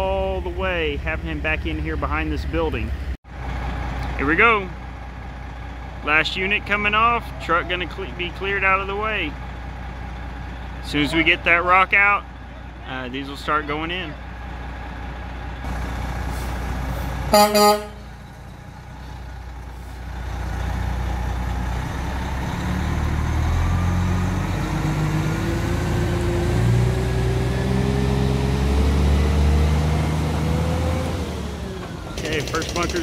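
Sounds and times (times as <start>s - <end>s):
diesel truck engine pulling away: 0.0s - 33.0s
truck horn toots: 17.3s - 18.2s.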